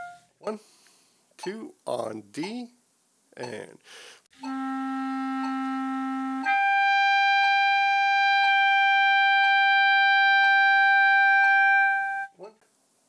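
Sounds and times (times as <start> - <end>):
clarinet holding a note: 0.0 - 0.3, 4.4 - 12.6.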